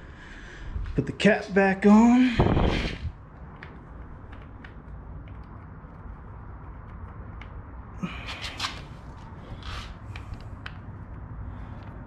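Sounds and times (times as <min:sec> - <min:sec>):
low steady rumble: 0:01.9 - 0:08.2.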